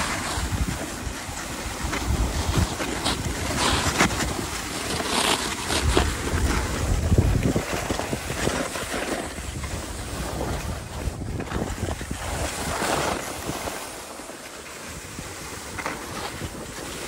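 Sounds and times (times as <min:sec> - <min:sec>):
wind buffeting microphone: 0:00.0 - 0:04.6, 0:05.6 - 0:14.0
skis scraping over snow: 0:00.0 - 0:17.0.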